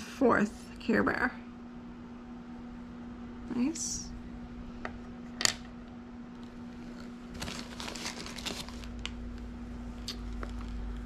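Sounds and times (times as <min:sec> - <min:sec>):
steady low hum: 0:00.0 - 0:11.0
packaging crinkling: 0:06.8 - 0:11.0.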